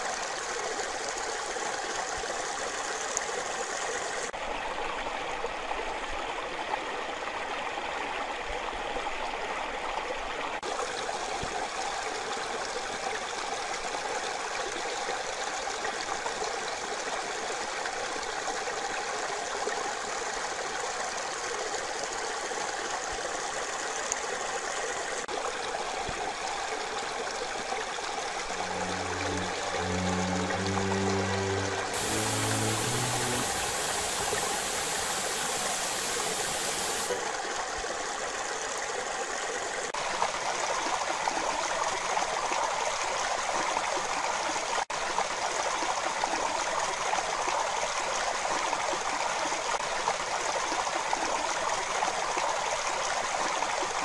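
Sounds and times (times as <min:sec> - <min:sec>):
music: 0:28.5 - 0:37.1
stream rushing over stones: 0:28.5 - 0:37.5.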